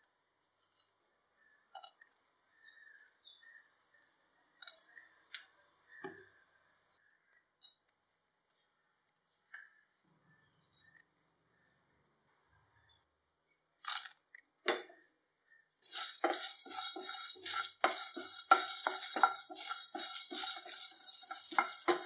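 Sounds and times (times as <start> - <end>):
spices clicking into a pan: 15.8 - 22.0.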